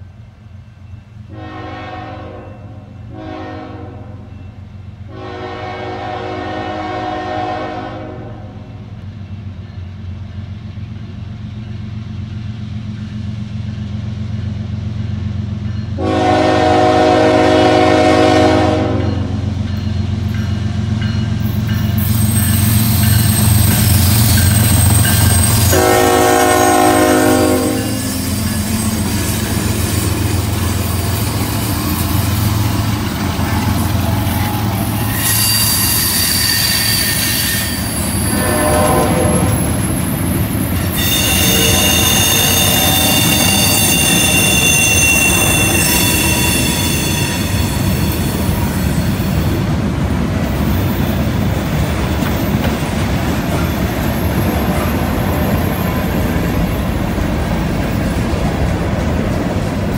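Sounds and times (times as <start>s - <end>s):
train horn: 1.3s - 4.5s, 5.1s - 8.8s, 16.0s - 19.6s, 25.6s - 28.5s, 34.9s - 39.9s, 40.9s - 48.8s
locomotive engine rumble: 6.1s - 36.8s, 37.6s - 59.9s
wheels on rails: 19.4s - 59.9s
high-pitched wheel squeal: 33.6s - 49.5s.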